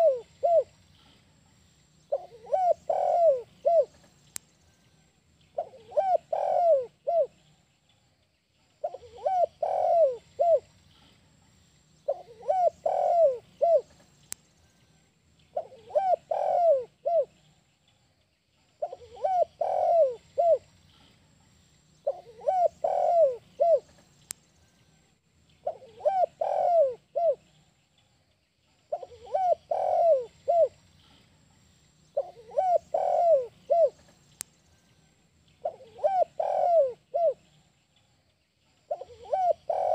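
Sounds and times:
dove cooing: 0:00.0 - 0:00.8, 0:02.1 - 0:04.0, 0:05.6 - 0:07.4, 0:08.8 - 0:10.7, 0:12.1 - 0:14.0, 0:15.5 - 0:17.4, 0:18.8 - 0:21.1, 0:22.0 - 0:24.0, 0:25.6 - 0:27.6, 0:28.9 - 0:31.2, 0:32.2 - 0:34.2, 0:35.6 - 0:37.5, 0:38.9 - 0:39.9.

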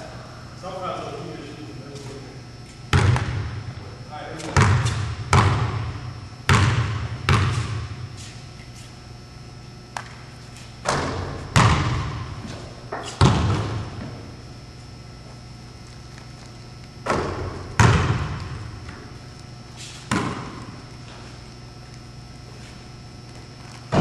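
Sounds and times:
basketball bouncing on hardwood floor: 0:02.9 - 0:03.5, 0:04.5 - 0:05.9, 0:06.5 - 0:07.8, 0:10.8 - 0:12.3, 0:13.0 - 0:14.2, 0:17.0 - 0:18.6, 0:20.1 - 0:20.6.

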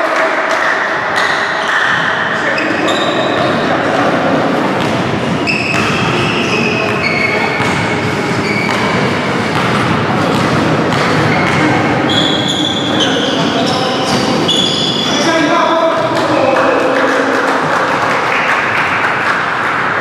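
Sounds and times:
voices: 0:00.0 - 0:18.8
basketball bouncing on wooden court: 0:04.8 - 0:15.1
short high-pitched squeaks: 0:12.1 - 0:15.3.

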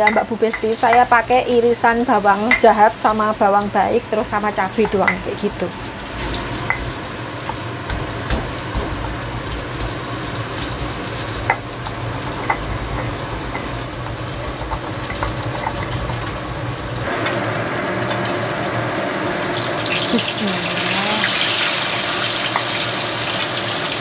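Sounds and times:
fish sizzling in oil: 0:00.0 - 0:24.0
oil popping: 0:03.5 - 0:23.6.

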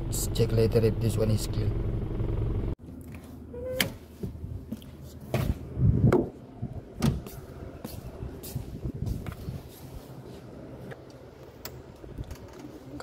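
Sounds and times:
car door knocks and thuds: 0:06.1 - 0:06.3.

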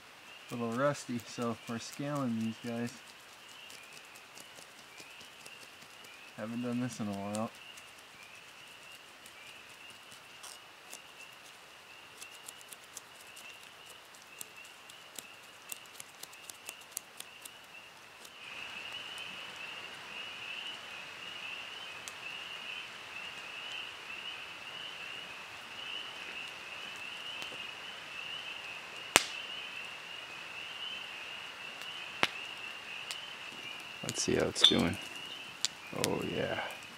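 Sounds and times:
campfire crackling: 0:00.0 - 0:36.9
fire popping: 0:00.5 - 0:19.3, 0:29.0 - 0:29.5, 0:31.8 - 0:36.9
high-pitched outdoor chorus: 0:34.2 - 0:35.1.

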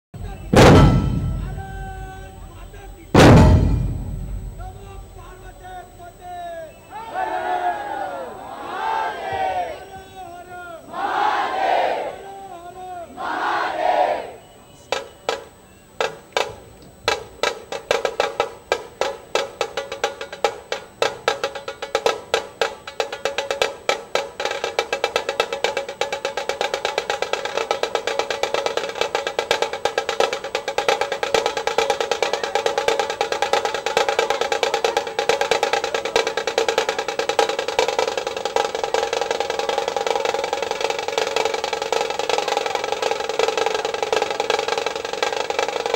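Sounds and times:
drums played with sticks: 0:00.2 - 0:05.9, 0:14.9 - 0:45.9.

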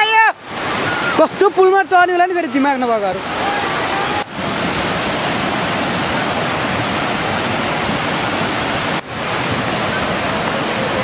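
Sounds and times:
river water rushing: 0:00.0 - 0:11.0.

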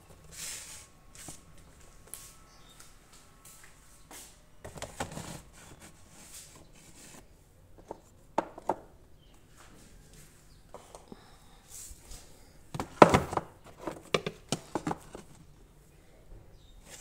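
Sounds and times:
plastic box scraping: 0:04.7 - 0:07.2
plastic box knocking on shelf: 0:12.7 - 0:15.0.

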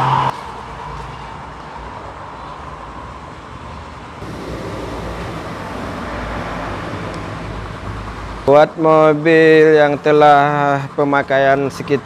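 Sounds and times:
road traffic rumble: 0:00.0 - 0:12.0.

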